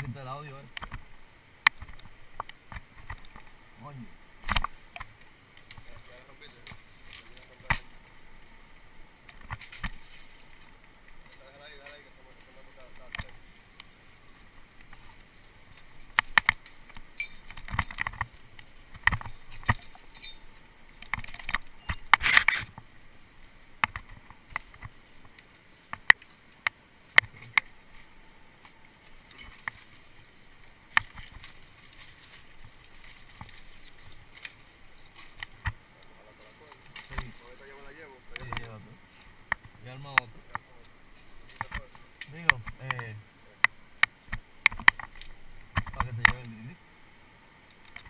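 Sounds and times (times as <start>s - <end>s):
rustle of dry leaves and branches: 0.0s - 48.0s
metal climbing gear clicking: 19.1s - 21.6s.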